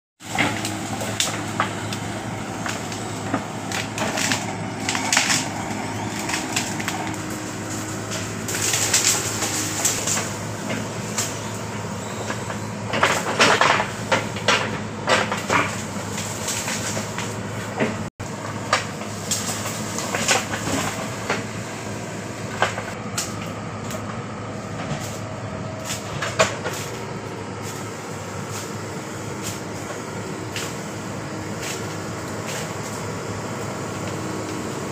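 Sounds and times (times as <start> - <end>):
diesel engine running: 0.2 - 34.9
branches cracking and snapping: 0.3 - 21.5, 22.4 - 28.8, 29.4 - 34.9.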